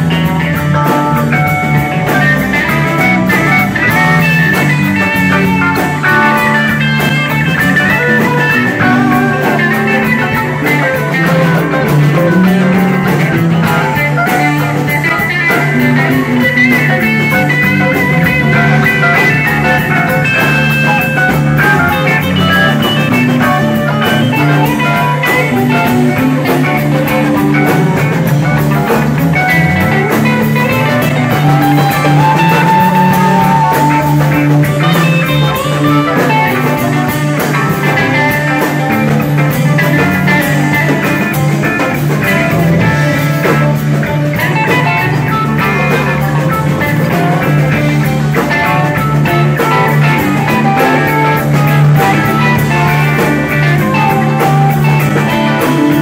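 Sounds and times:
drum kit: 0.0s - 56.0s
electric bass: 0.0s - 56.0s
electric guitars: 0.0s - 56.0s
guitar holding long high note: 0.0s - 56.0s.

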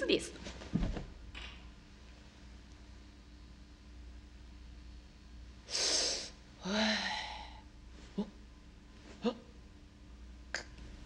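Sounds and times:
breathy voiced sigh: 5.7s - 7.6s
soft vocal sounds: 5.7s - 8.5s, 9.1s - 9.6s, 10.4s - 10.9s.

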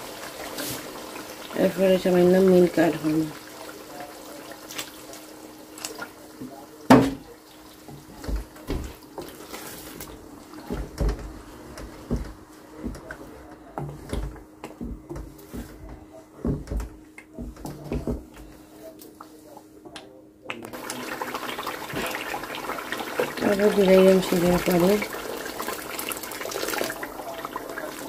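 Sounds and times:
water running and splashing: 0.0s - 13.0s, 20.7s - 28.0s.

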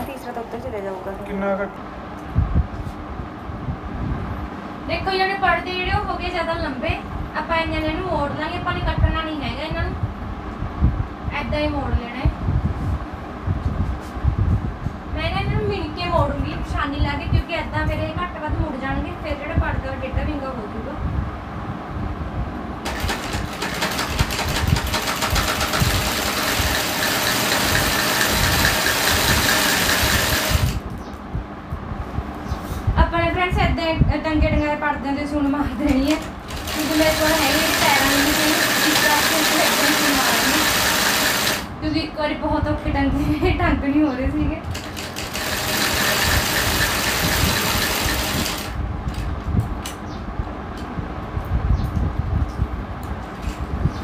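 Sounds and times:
sewing machine running: 22.8s - 30.8s, 36.0s - 41.7s, 44.7s - 48.8s.

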